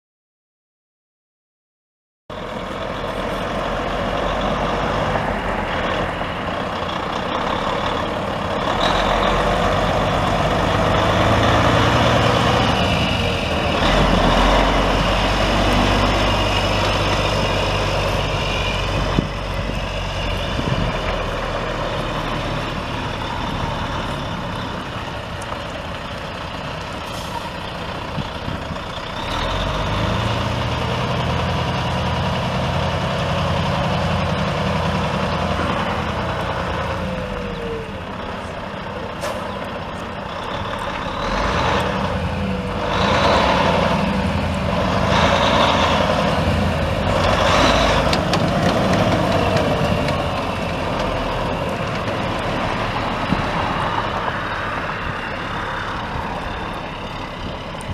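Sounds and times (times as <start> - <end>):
diesel truck engine running: 2.3 - 57.9.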